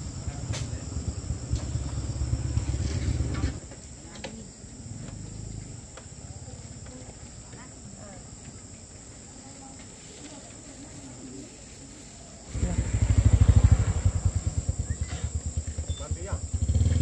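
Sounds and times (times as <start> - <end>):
small engine running: 0.0 - 3.6, 12.5 - 17.0
faint insect chirring: 0.0 - 17.0.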